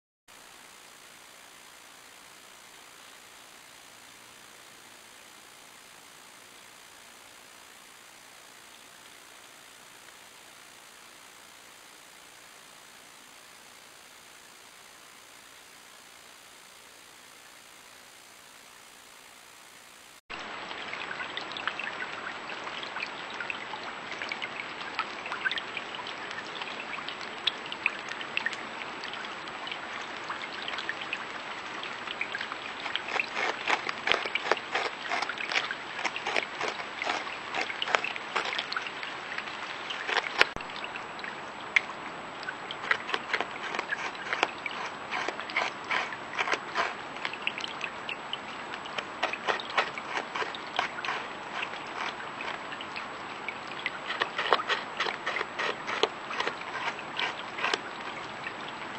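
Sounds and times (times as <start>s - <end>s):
background hiss: 0.3s - 22.3s
beaver gnawing wood: 32.4s - 39.0s, 39.8s - 40.6s, 42.8s - 47.3s, 48.8s - 52.6s, 53.9s - 57.9s.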